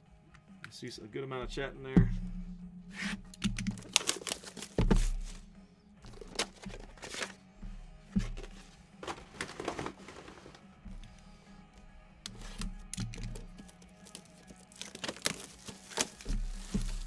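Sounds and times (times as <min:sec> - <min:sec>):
background music with low beat: 0:00.0 - 0:17.0
cardboard boxes clicking and rustling: 0:03.4 - 0:05.4, 0:06.1 - 0:07.4, 0:08.2 - 0:10.6, 0:12.3 - 0:17.0.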